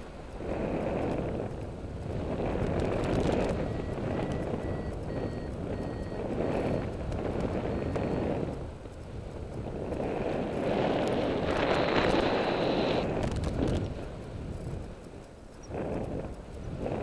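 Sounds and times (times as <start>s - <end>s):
wind rushing over microphone: 0.0s - 17.0s
variometer steady high tone: 3.3s - 9.1s
variometer short high beeps: 3.4s - 7.0s, 7.7s - 8.4s.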